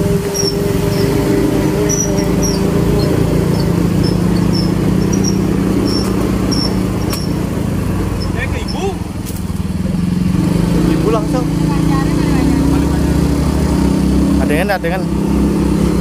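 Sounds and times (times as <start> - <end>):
scooter engine running: 0.0 - 16.0.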